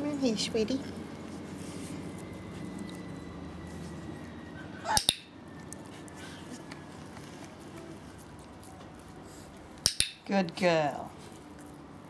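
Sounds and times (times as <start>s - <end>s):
dog-training clicker double click: 9.8s - 10.2s.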